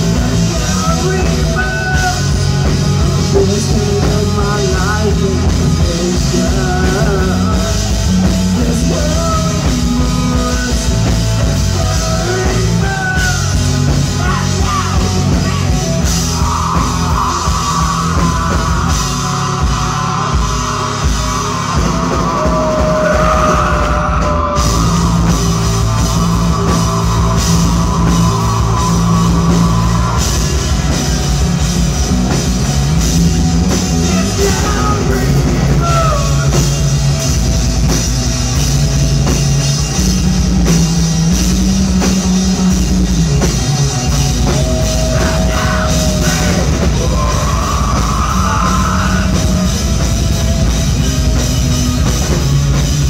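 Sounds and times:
person singing: 0:00.0 - 0:30.3, 0:33.9 - 0:36.9
live rock band playing: 0:00.0 - 0:53.0.

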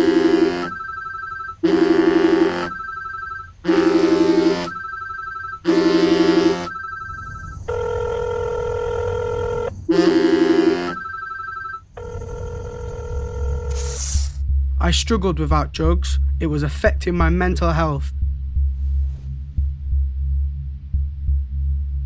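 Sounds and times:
telephone warbling ring: 0:00.0 - 0:13.8
quiet pulsing beep: 0:00.0 - 0:14.6
steady held tone: 0:00.0 - 0:18.8.

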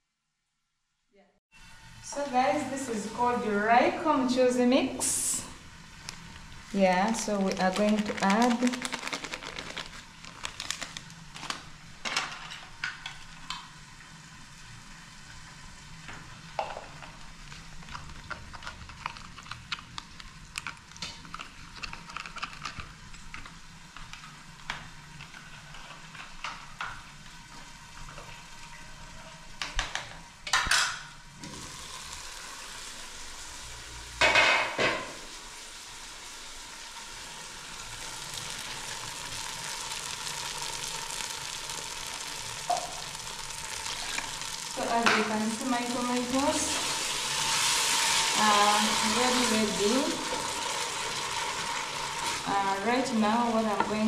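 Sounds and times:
sauce sizzling in a pot: 0:01.5 - 0:18.2, 0:22.9 - 0:54.0
packets and utensils rustling: 0:06.8 - 0:13.3, 0:17.8 - 0:24.2.

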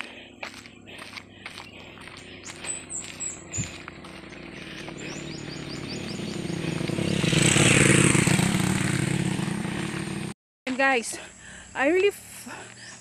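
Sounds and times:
vehicle engine passing: 0:01.0 - 0:10.3.

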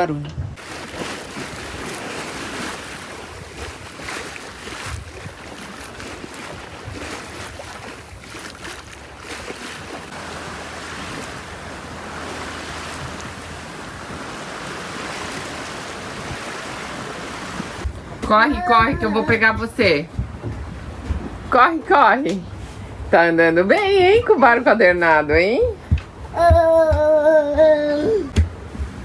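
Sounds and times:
water rushing past boat hull: 0:00.0 - 0:29.0
wind on microphone: 0:00.1 - 0:21.6.

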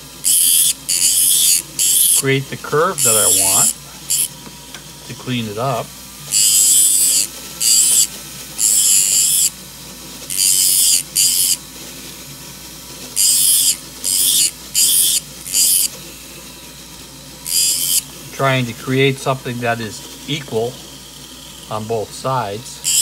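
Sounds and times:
sanding disc grinding metal: 0:00.0 - 0:04.4, 0:06.3 - 0:09.6, 0:10.3 - 0:11.6, 0:13.1 - 0:16.8, 0:17.4 - 0:22.2, 0:22.8 - 0:23.0.

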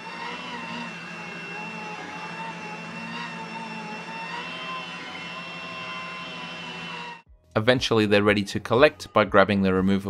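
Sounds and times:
motor whine: 0:00.0 - 0:07.3.

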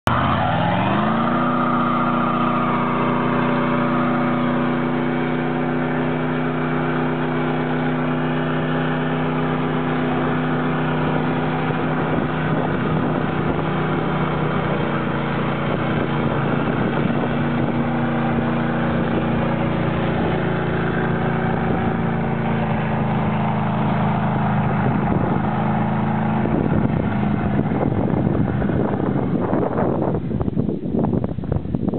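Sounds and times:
truck engine revving: 0:00.0 - 0:31.9
tyres spinning on pavement: 0:00.1 - 0:30.5.

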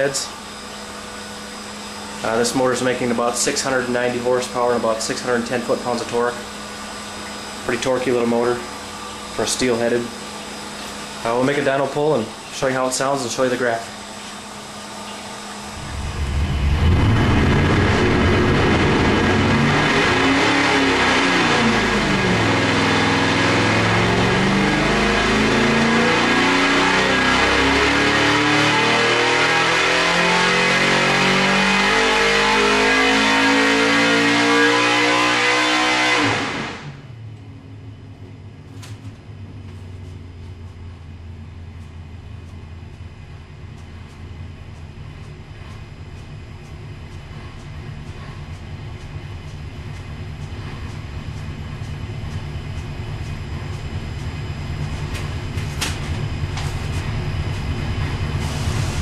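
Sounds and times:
engine rumbling on dyno: 0:00.0 - 0:59.0
engine revving at full throttle: 0:15.3 - 0:37.1.

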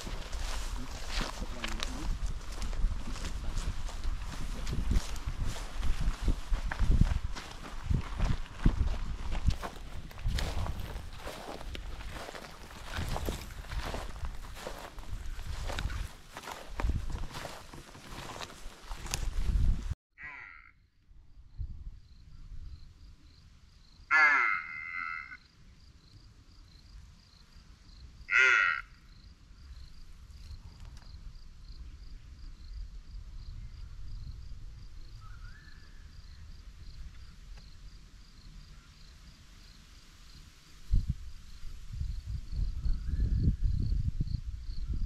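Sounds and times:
harsh rasping bird calls: 0:20.2 - 0:20.9, 0:24.1 - 0:25.4, 0:28.3 - 0:29.1
pulsing insect chirp: 0:21.2 - 0:45.0.

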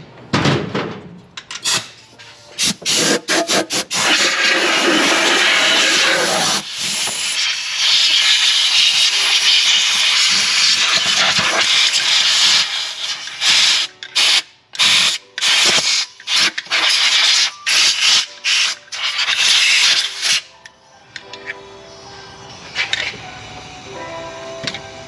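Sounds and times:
compressed-air gun hissing: 0:01.6 - 0:02.0, 0:02.6 - 0:20.5.

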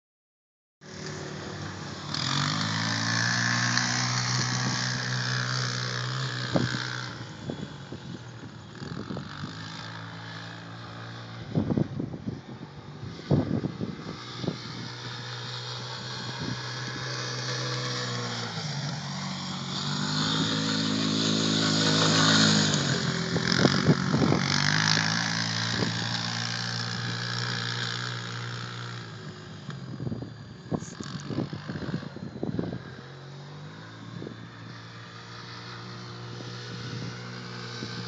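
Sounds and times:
quad bike engine running: 0:00.8 - 0:38.0.

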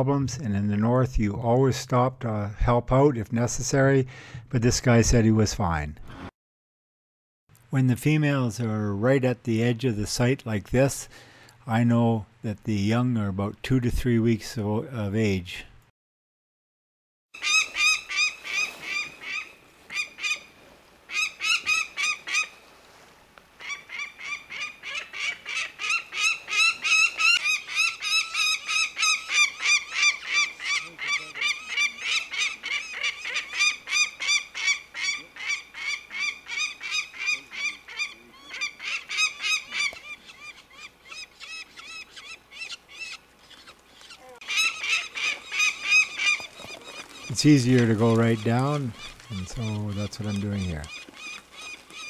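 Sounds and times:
falcon harsh alarm call: 0:17.4 - 0:20.5, 0:21.1 - 0:22.6, 0:23.6 - 0:52.0.

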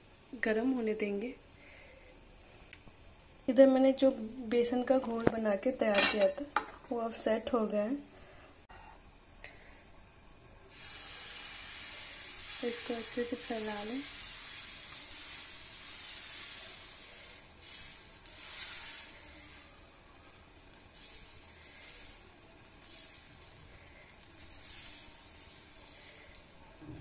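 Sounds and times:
batter sizzling in pan: 0:10.6 - 0:27.0.

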